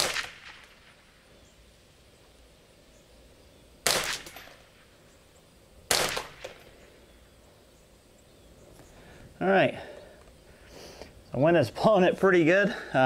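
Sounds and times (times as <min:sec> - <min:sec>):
rifle shots echoing: 0:00.0 - 0:01.2, 0:03.8 - 0:05.0, 0:05.8 - 0:06.9.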